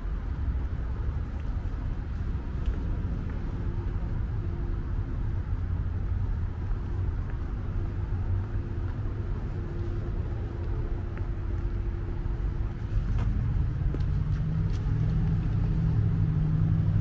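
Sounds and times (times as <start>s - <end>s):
city street rumble: 0.0s - 17.0s
faint steady hum: 0.0s - 17.0s.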